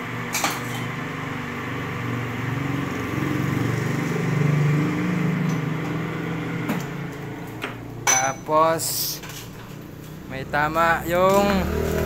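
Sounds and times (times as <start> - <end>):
lathe motor and gear hum: 10.3 - 12.0.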